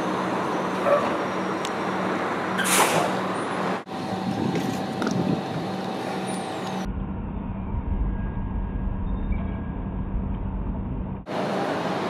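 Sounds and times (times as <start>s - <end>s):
tram whine: 0.0s - 12.0s
light-rail car passing: 9.8s - 12.0s.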